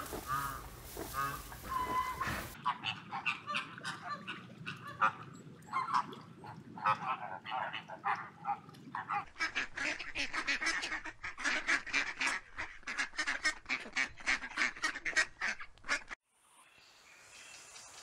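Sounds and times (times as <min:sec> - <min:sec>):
waterfowl honking: 0:00.0 - 0:06.1.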